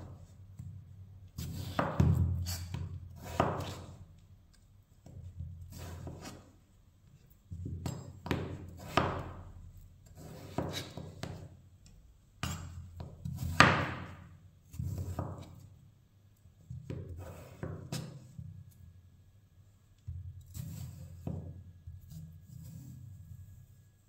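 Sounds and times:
knife cutting potatoes on wooden board: 1.3 - 4.0, 5.0 - 6.6, 7.6 - 11.5, 12.4 - 15.8, 16.8 - 18.4, 20.5 - 22.9.

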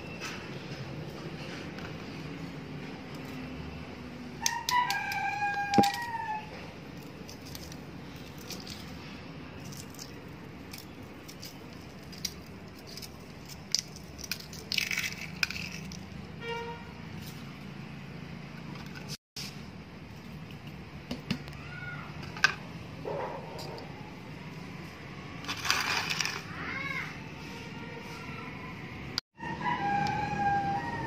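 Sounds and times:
rooster crowing: 4.4 - 6.6, 29.4 - 31.0.

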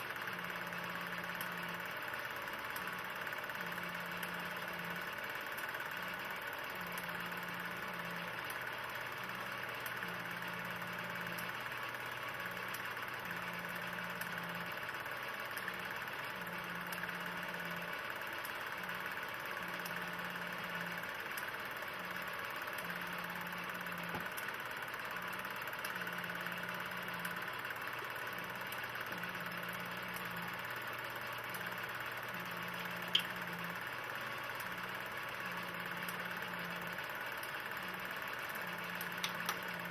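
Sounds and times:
film projector whirring: 0.0 - 39.9
sharp click: 33.1 - 33.4.

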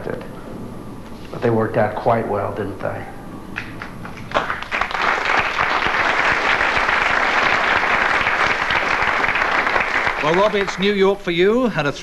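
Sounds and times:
audience applauding: 3.7 - 11.2.

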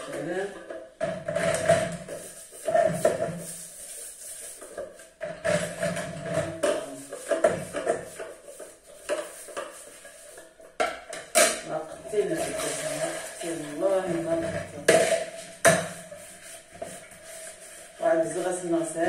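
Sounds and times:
dishes being handled: 4.5 - 17.4.

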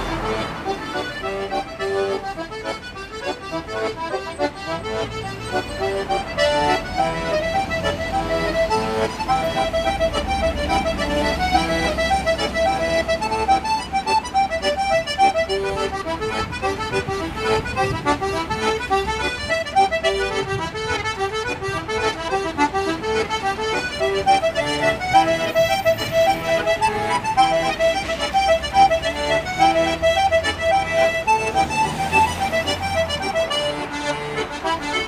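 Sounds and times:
button accordion playing a reel: 0.0 - 35.0.

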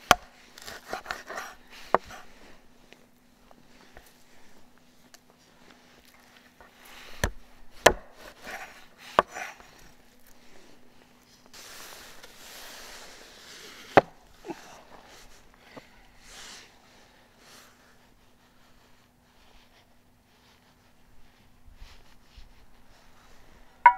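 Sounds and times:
cleaver chopping on wooden board: 0.0 - 1.3, 7.2 - 8.1, 9.1 - 9.4.

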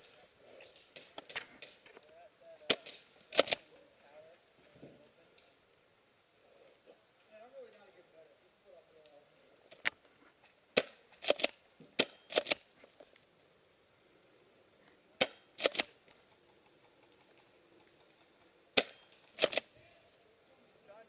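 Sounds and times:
airsoft shotgun shots: 2.7 - 3.6, 10.8 - 12.6, 15.2 - 15.9, 18.8 - 19.7
shotgun pump clacking: 2.7 - 3.6, 10.8 - 12.6, 15.2 - 19.7.

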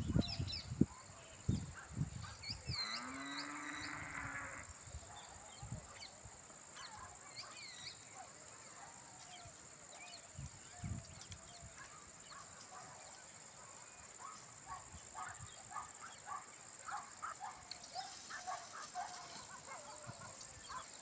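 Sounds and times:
small birds chirping: 5.1 - 21.0.

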